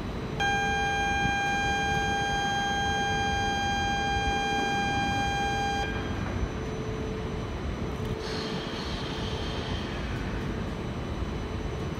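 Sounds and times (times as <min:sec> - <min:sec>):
high electronic buzzer tone: 0:00.4 - 0:06.2.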